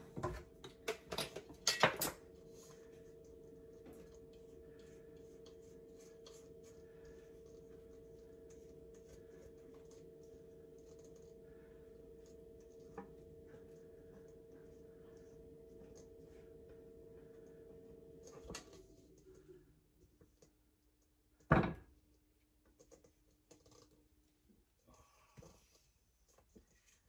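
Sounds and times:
steady low hum: 2.2 - 20.3.

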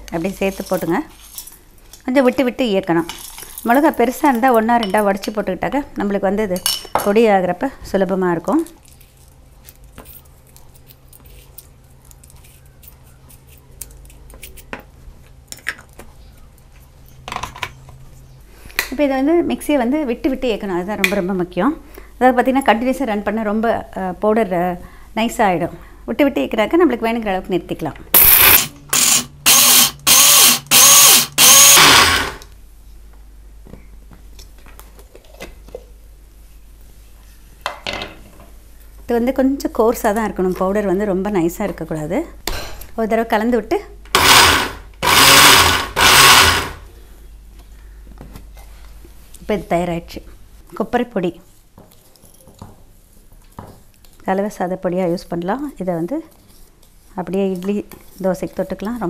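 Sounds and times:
mixer grinder whining: 28.2 - 32.5, 44.1 - 46.9.

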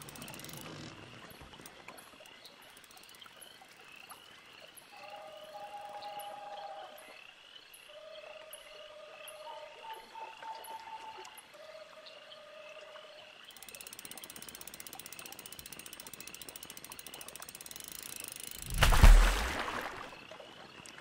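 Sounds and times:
fast ratcheting click: 0.0 - 0.8, 13.5 - 18.7
frogs trilling: 0.0 - 18.7.

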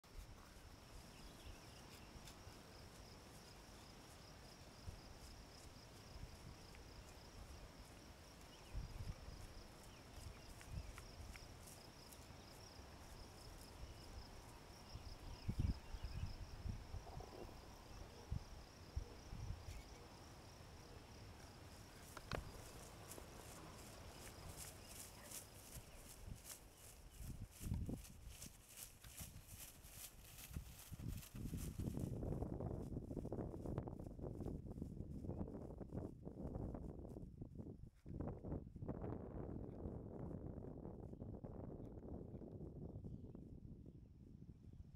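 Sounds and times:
insects trilling: 0.2 - 32.0.

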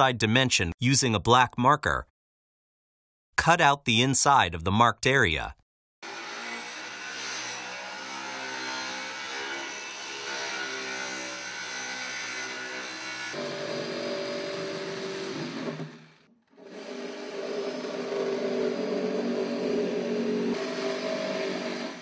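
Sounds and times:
circular saw cutting: 6.0 - 22.0
reciprocating saw cutting: 6.0 - 22.0.

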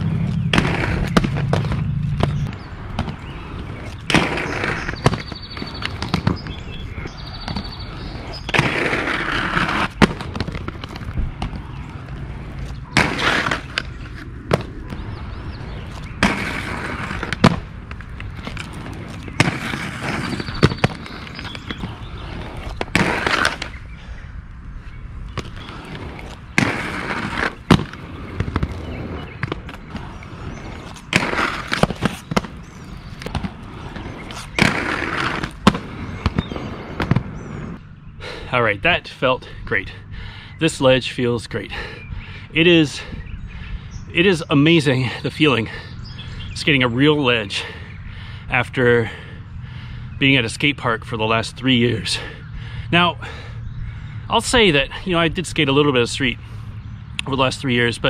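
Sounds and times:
skates grinding concrete ledge: 0.0 - 24.2, 24.8 - 37.8
inline skates rolling on concrete: 0.0 - 38.5.

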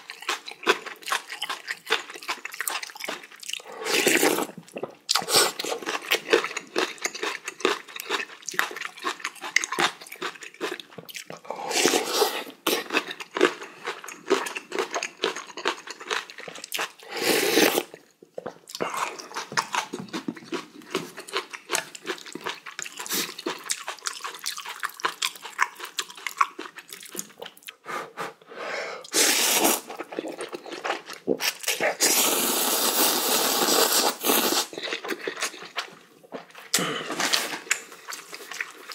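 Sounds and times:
wet chewing: 0.0 - 27.8, 34.3 - 38.9
noodle slurping: 3.5 - 6.1, 11.5 - 12.9, 17.0 - 18.0, 29.0 - 35.5.

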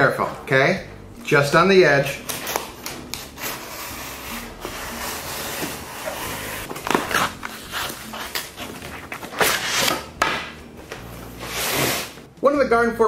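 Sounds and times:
knife cutting cardboard: 2.5 - 10.4
cardboard rustling and knocking: 6.7 - 7.6.

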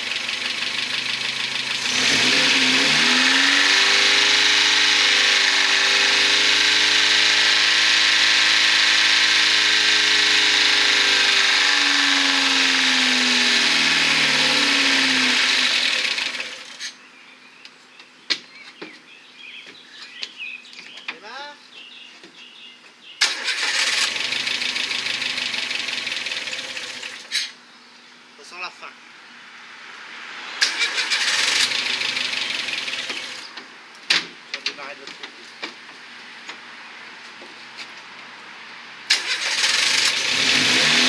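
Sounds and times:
car engine screaming at high revs: 0.0 - 16.9, 23.2 - 27.4, 29.8 - 33.6, 39.1 - 41.0.

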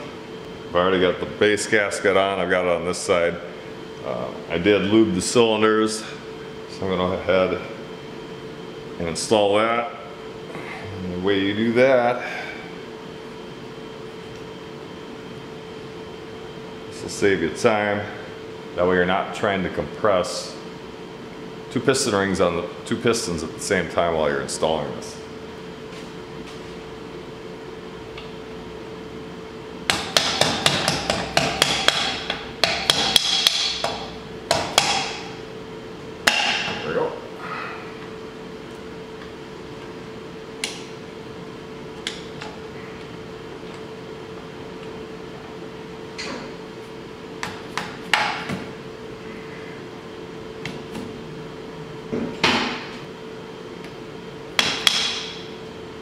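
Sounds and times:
mallet tapping on engine: 29.9 - 35.2.

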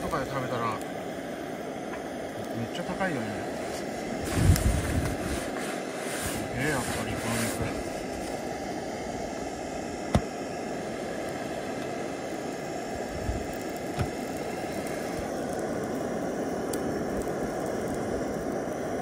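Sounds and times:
gas burner rushing: 0.0 - 19.0.

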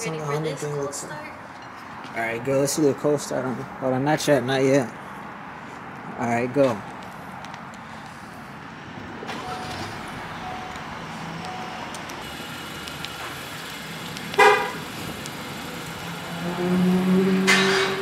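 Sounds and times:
outdoor background: 0.0 - 18.0
car horn chirp: 14.4 - 14.9.

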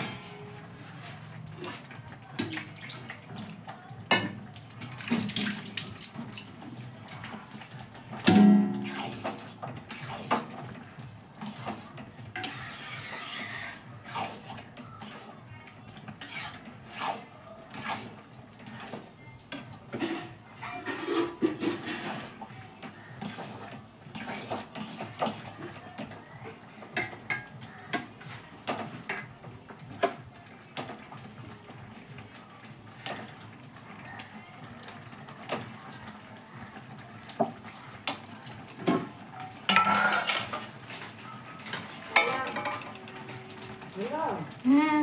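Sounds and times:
loud knocks on pot: 8.2 - 8.8
metal spatula scraping pot: 8.2 - 10.7, 11.4 - 15.4, 16.0 - 25.8, 39.4 - 43.9.

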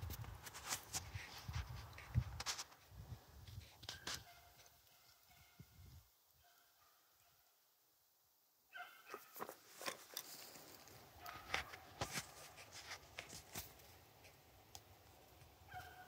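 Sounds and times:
distant hound baying: 8.7 - 9.5, 11.1 - 12.1, 15.6 - 16.0
dry leaves rustling and twigs snapping: 9.1 - 16.0.

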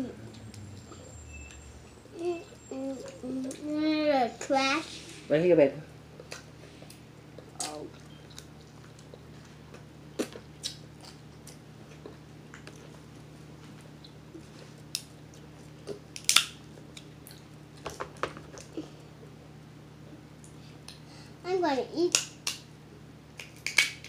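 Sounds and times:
faint low hum: 0.0 - 24.0
crab shells cracking: 16.1 - 17.1, 23.4 - 24.0.

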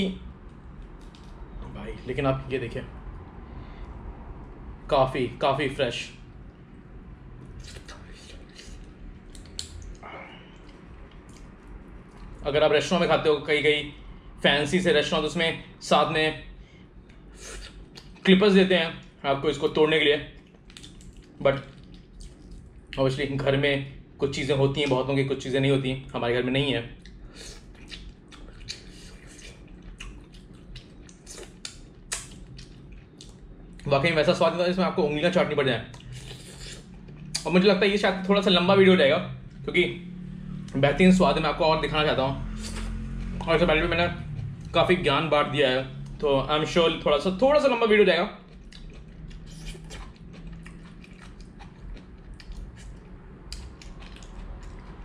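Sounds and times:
man chewing and sucking fingers: 7.4 - 12.4, 17.0 - 18.2, 20.4 - 23.0, 27.0 - 33.9, 35.9 - 37.4, 42.5 - 43.4, 48.4 - 55.0
wet smacks and clicks: 7.6 - 10.0, 20.4 - 23.0, 27.0 - 33.4.

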